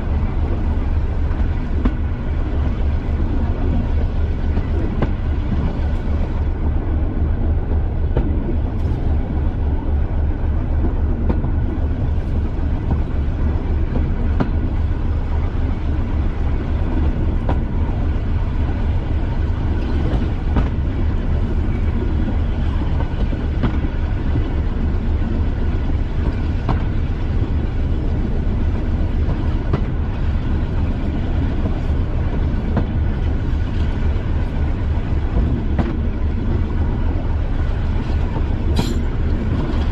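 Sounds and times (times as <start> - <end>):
diesel train engine rumbling: 0.0 - 39.9
wheels clicking on track: 16.9 - 39.9.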